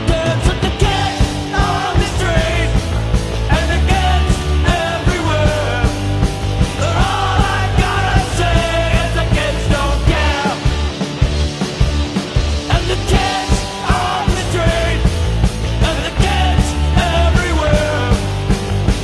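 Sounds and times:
bass guitar: 0.0 - 19.0
drums: 0.0 - 19.0
electric guitar: 0.0 - 19.0
person singing: 6.8 - 10.9, 12.7 - 18.4.

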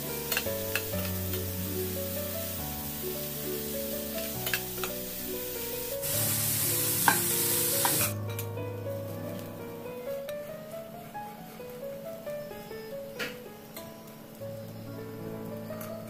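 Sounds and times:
vegetables sizzling in a pan: 0.0 - 8.2
background music: 0.0 - 16.0.

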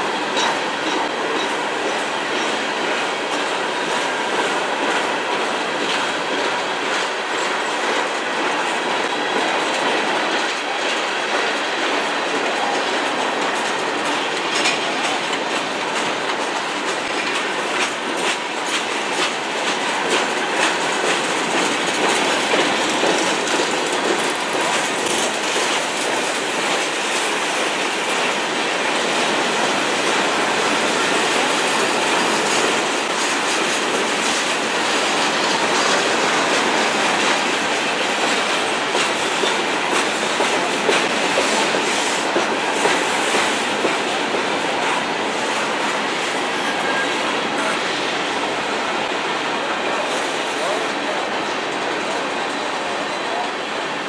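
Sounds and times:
steel wheels on rail: 0.0 - 54.0
wheels clicking over rail joints: 12.3 - 44.5.

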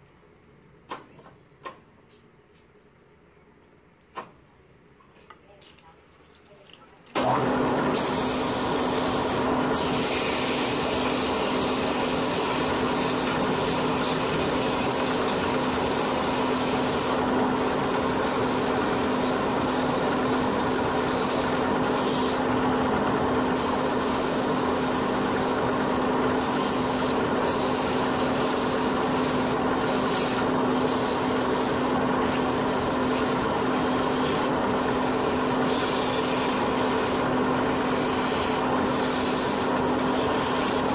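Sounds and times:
wood lathe motor hum: 7.2 - 40.9
sandpaper rasping on wood: 8.3 - 22.4, 23.6 - 40.9.

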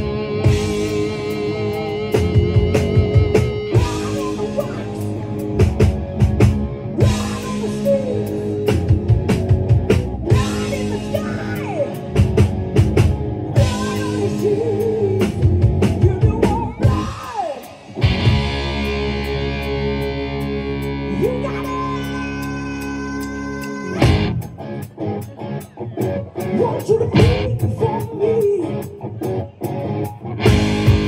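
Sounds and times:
drum kit beat: 0.0 - 21.0, 23.6 - 25.4, 30.4 - 31.0
bass guitar: 0.0 - 31.0
distorted electric guitars: 0.0 - 31.0
person singing: 0.7 - 5.3, 7.0 - 9.1, 10.3 - 12.1, 13.6 - 18.0, 21.1 - 24.2, 26.4 - 29.1.

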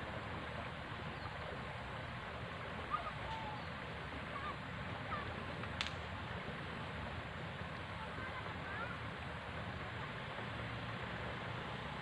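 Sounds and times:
water rushing along a ditch: 0.0 - 12.0.

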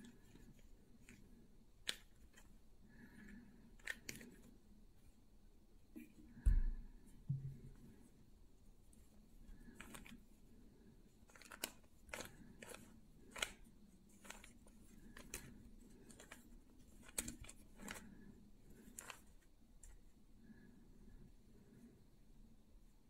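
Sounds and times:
plastic puzzle cube clicking: 3.8 - 4.4, 11.3 - 13.6, 18.8 - 19.2.

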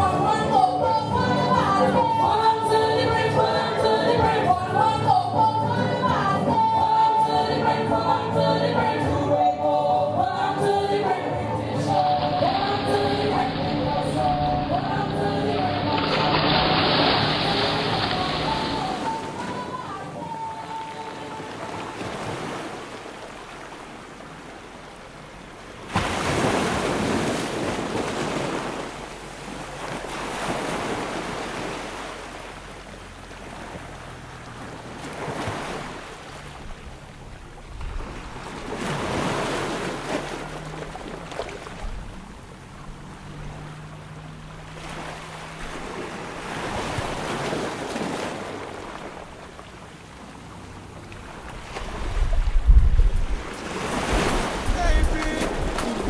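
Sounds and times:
small waves washing onto shore: 11.8 - 56.0.

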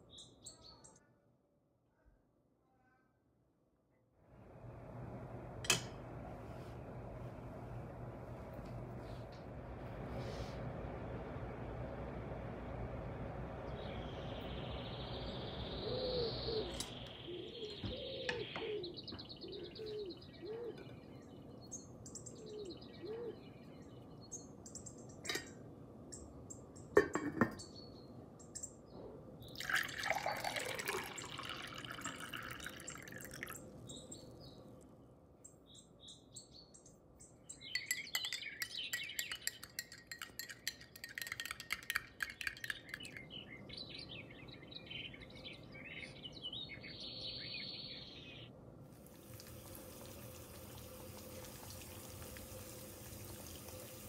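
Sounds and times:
spoon clinking against glass: 37.6 - 43.3.

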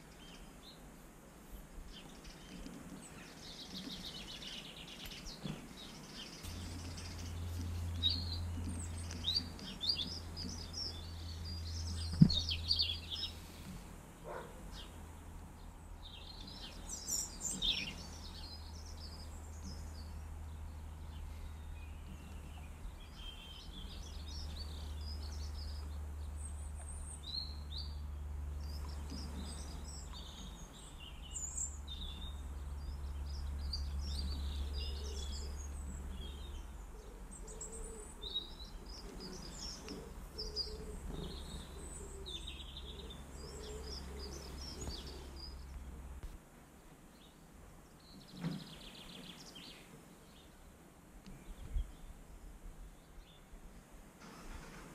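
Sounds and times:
songbirds chirping and singing: 0.0 - 46.4, 47.1 - 52.2
steady low rumble: 1.5 - 46.4.

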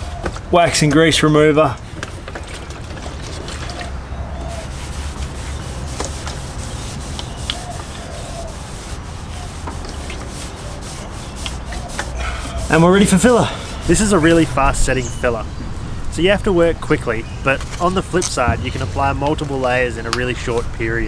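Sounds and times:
cloth rubbing on metal panel: 0.0 - 15.4
low hum: 13.6 - 20.1.

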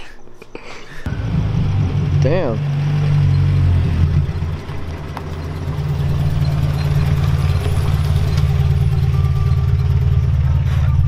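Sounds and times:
pickup truck engine idling: 3.3 - 11.0.

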